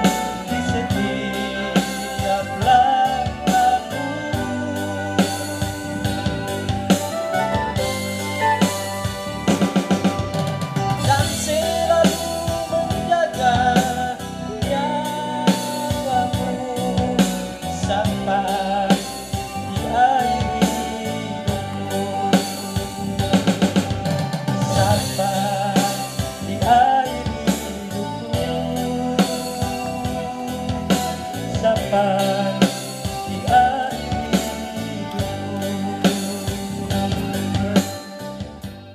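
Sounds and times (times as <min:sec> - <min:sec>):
man singing into a microphone: 0:00.0 - 0:08.7, 0:11.0 - 0:24.0, 0:24.6 - 0:38.4
electronic keyboard: 0:00.0 - 0:38.9
steady drum beat: 0:00.0 - 0:38.9.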